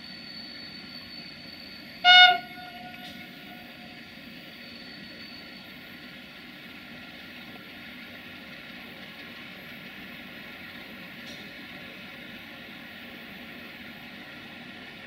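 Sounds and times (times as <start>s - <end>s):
locomotive horn blast: 2.0s - 3.7s.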